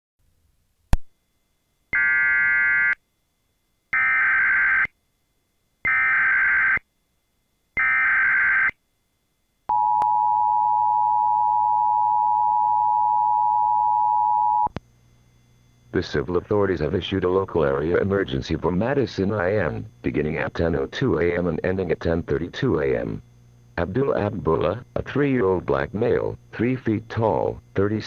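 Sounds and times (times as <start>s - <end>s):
digital data tone bursts: 7.8s - 8.7s
two-tone attention signal: 9.7s - 14.7s.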